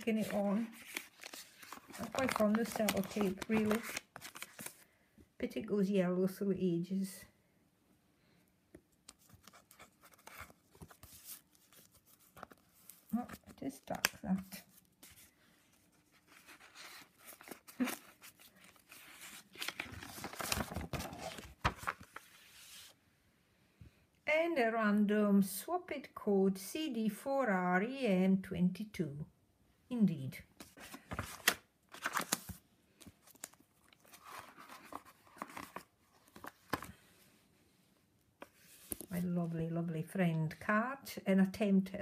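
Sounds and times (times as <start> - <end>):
paper pages rustling: 0.0 - 4.8, 9.0 - 23.0, 30.6 - 37.2, 38.4 - 39.4.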